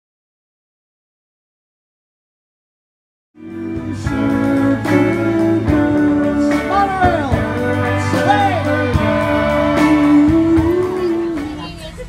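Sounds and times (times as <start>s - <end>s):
electric guitar band music: 3.4s - 12.0s.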